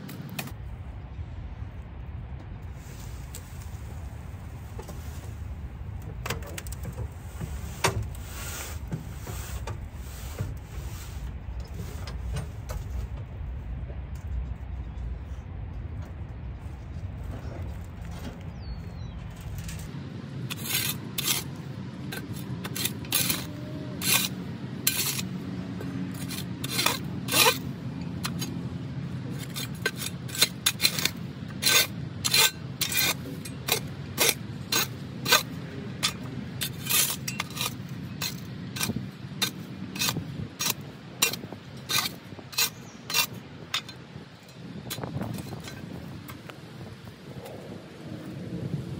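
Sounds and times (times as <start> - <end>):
low steady rumble: 0.0 - 48.9
metal shovel scraping soil: 6.7 - 12.9, 17.4 - 46.5.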